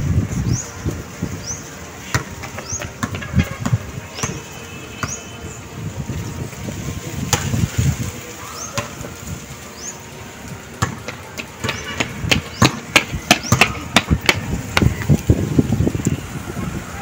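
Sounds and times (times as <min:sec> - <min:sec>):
basketball bouncing: 0:02.1 - 0:05.2, 0:10.8 - 0:14.9.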